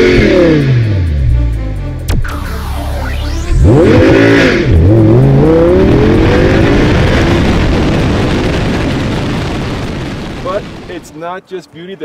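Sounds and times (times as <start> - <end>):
sports car engine accelerating: 0.0 - 8.6.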